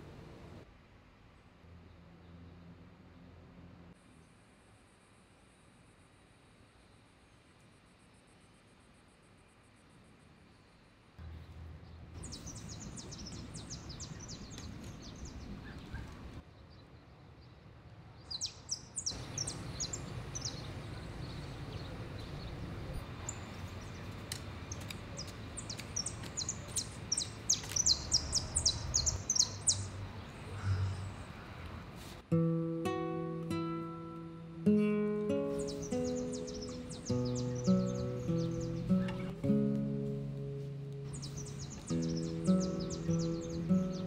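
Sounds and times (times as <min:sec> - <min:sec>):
low outdoor background rumble: 0:00.0 - 0:05.1, 0:08.4 - 0:16.4, 0:19.1 - 0:32.0
small birds chirping: 0:11.4 - 0:16.8, 0:18.2 - 0:31.9, 0:35.3 - 0:44.0.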